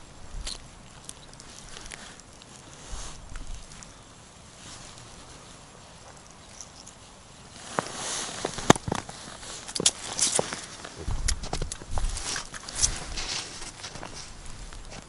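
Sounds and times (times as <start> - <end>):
clothing rustling: 4.6 - 15.0.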